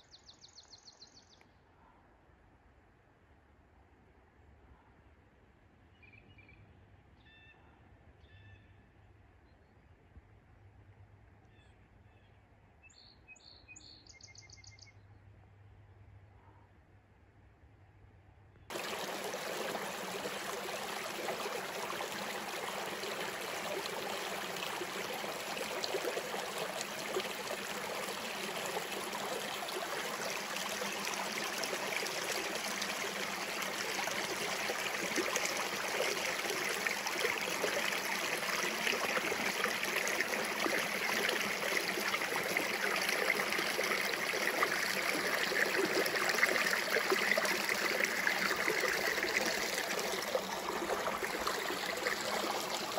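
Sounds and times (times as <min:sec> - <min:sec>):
brook rushing over stones: 0:18.7 - 0:52.9.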